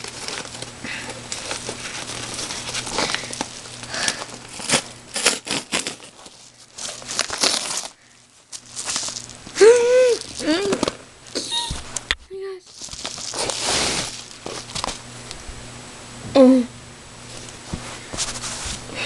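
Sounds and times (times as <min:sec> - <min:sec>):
padded envelope being torn open: 0:00.0 - 0:11.0, 0:12.7 - 0:15.0
paper and plastic crinkling: 0:00.0 - 0:12.0, 0:12.6 - 0:15.1.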